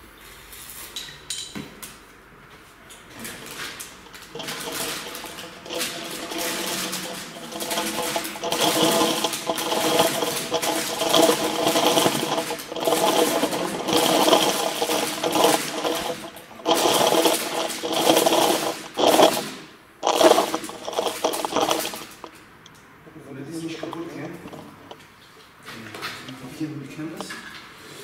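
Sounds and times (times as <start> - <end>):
plastic snack bag crinkling: 3.4 - 22.4, 23.6 - 25.0.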